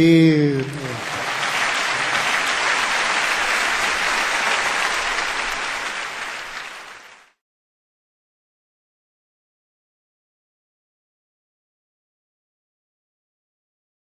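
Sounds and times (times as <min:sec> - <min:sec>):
audience applause: 0:00.0 - 0:07.4.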